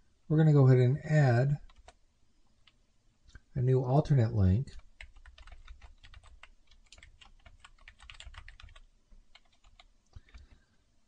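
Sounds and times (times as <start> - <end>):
faint keyboard typing: 1.5 - 3.4, 4.7 - 10.8.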